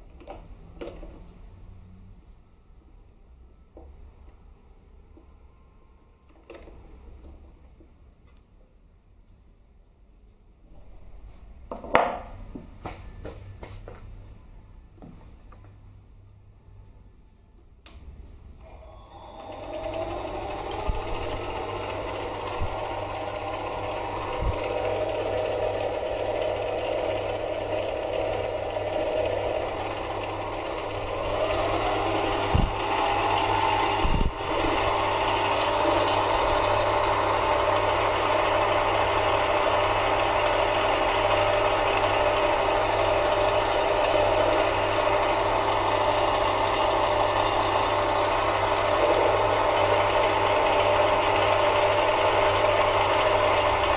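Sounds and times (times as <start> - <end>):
lathe motor whine: 18.6 - 53.9.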